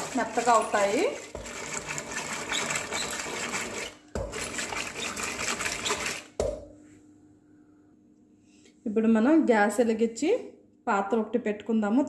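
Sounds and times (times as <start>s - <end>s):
hand blender churning wet food: 0.0s - 6.4s.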